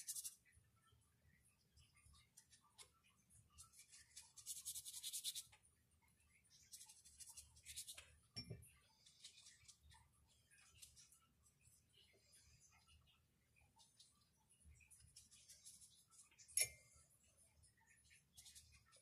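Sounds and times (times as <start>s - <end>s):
paintbrush scrubbing on paper: 0.0s - 0.4s, 3.6s - 5.6s, 6.6s - 8.1s, 15.0s - 16.4s.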